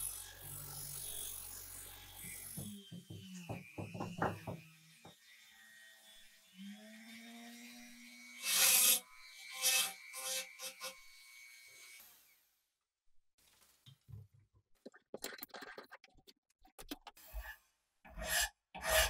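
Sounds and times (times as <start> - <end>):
grinding bit scraping metal: 17.2 - 19.0.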